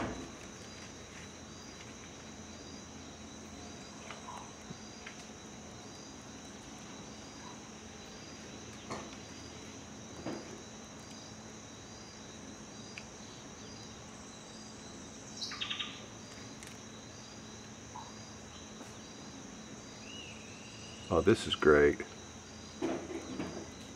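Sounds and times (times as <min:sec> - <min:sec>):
chorus of insects: 0:00.0 - 0:23.9
bird calls: 0:15.4 - 0:16.5.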